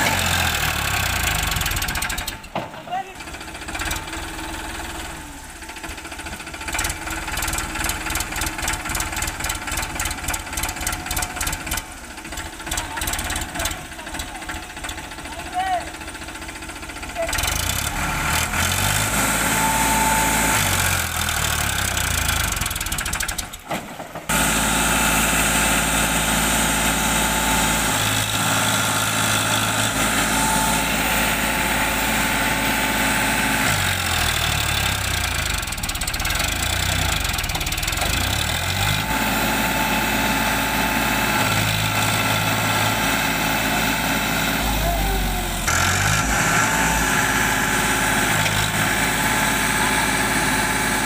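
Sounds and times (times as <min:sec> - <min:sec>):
tractor diesel engine: 0:00.0 - 0:51.0.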